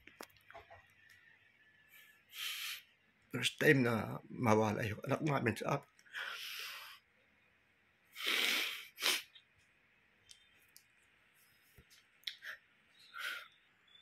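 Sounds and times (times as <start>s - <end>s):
man sobbing and sniffing: 8.1s - 9.4s.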